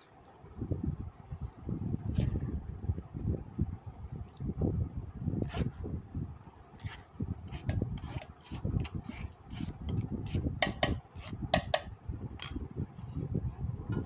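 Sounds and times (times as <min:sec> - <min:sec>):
metal ladle scraping a strainer: 0:05.4 - 0:05.8, 0:06.8 - 0:11.4.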